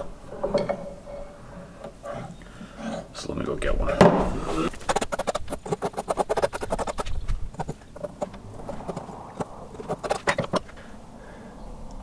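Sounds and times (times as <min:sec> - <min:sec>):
hand file rasping on metal: 0:04.7 - 0:10.7.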